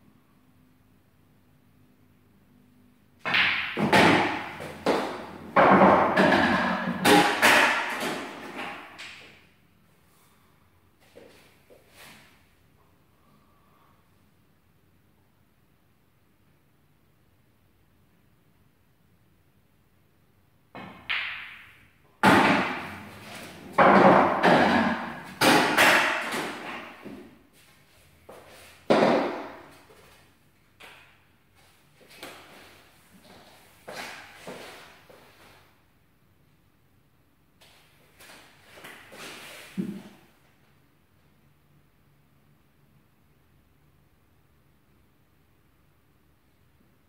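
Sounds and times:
pool balls knocking: 0:03.2 - 0:09.1, 0:20.8 - 0:27.2, 0:28.9 - 0:29.8.

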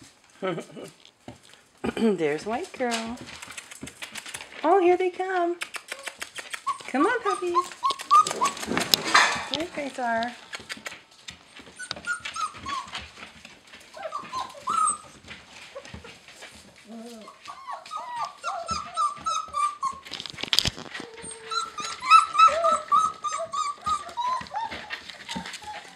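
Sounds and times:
rustling: 0:00.0 - 0:25.9
puppies whimpering and squeaking: 0:05.9 - 0:09.7, 0:11.3 - 0:25.9.

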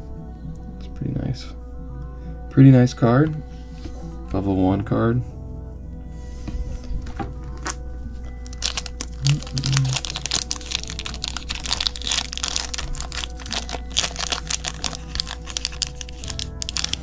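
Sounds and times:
background music: 0:00.0 - 0:17.0
foil wrapper crinkling: 0:08.4 - 0:17.0.

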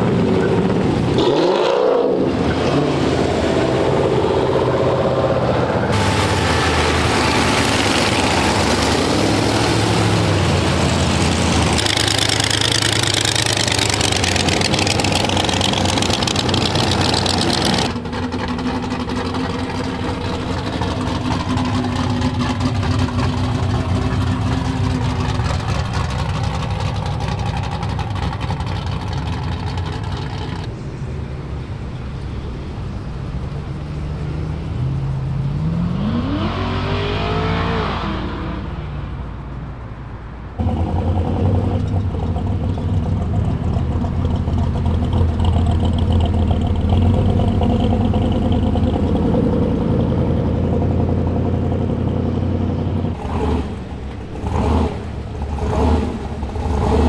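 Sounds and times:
engine revving up: 0:00.0 - 0:25.8, 0:34.0 - 0:39.0, 0:46.9 - 0:57.0
cars driving past: 0:00.0 - 0:57.0
car engine idling: 0:03.6 - 0:35.6, 0:38.9 - 0:57.0.

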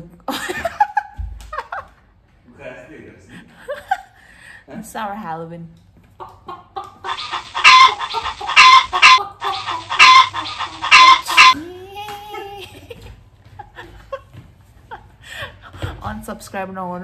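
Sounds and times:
loud clucking squawks: 0:06.2 - 0:11.6.

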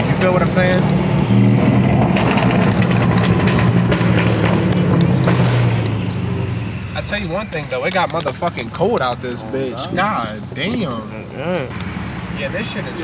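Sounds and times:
car engine running loud: 0:00.0 - 0:09.3.

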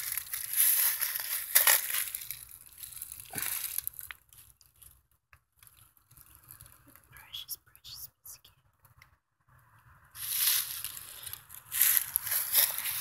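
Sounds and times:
rustling and crunching dry twigs: 0:00.0 - 0:07.4, 0:10.1 - 0:13.0.

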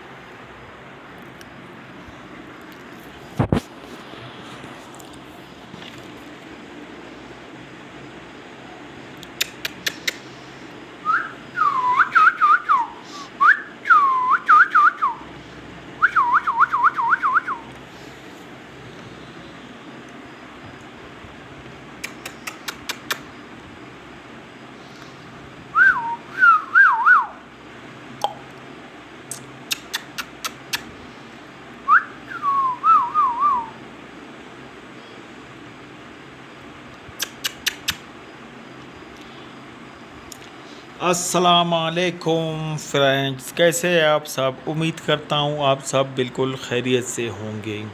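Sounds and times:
parakeet sharp clicks: 0:09.2 - 0:10.2, 0:22.0 - 0:23.3, 0:29.3 - 0:30.9, 0:37.2 - 0:38.1
parakeet clicking: 0:22.0 - 0:23.3, 0:37.2 - 0:38.0.

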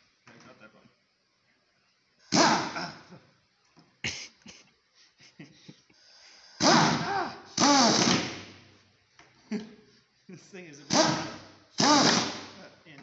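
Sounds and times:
impact wrench driving screws: 0:06.6 - 0:08.6, 0:10.9 - 0:12.6.

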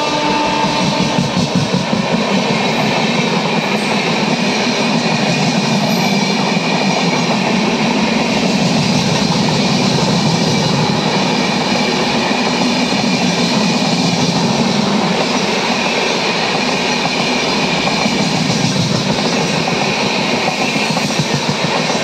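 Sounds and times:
train passing at speed: 0:00.0 - 0:22.0.

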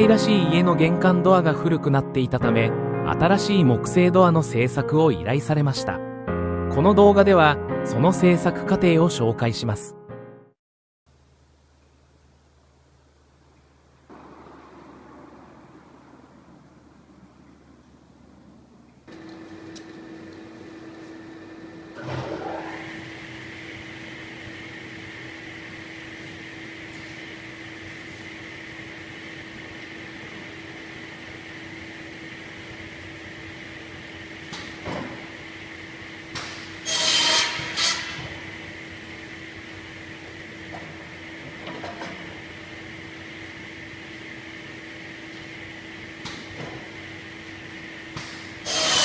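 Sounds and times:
saw blade cutting wood: 0:36.8 - 0:38.3, 0:48.6 - 0:49.0
saw humming: 0:36.8 - 0:38.6, 0:48.6 - 0:49.0.

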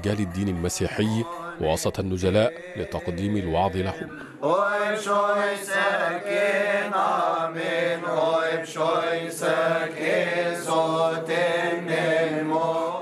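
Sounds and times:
men chanting a hymn: 0:00.0 - 0:13.0.

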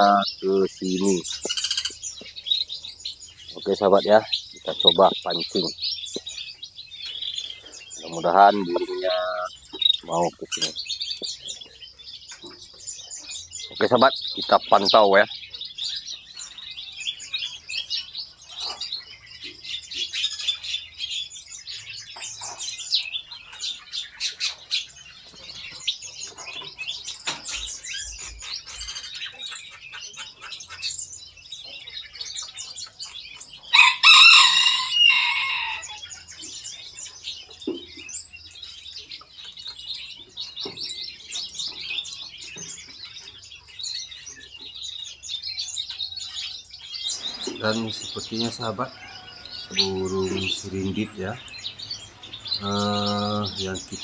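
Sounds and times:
small birds chirping: 0:00.0 - 0:54.0
rooster crowing: 0:33.7 - 0:36.0, 0:48.6 - 0:50.6.

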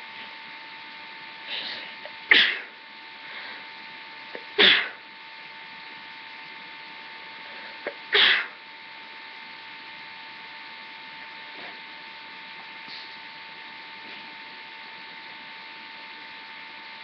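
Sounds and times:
person sneezing: 0:01.5 - 0:02.8, 0:04.6 - 0:05.0, 0:07.8 - 0:08.6.

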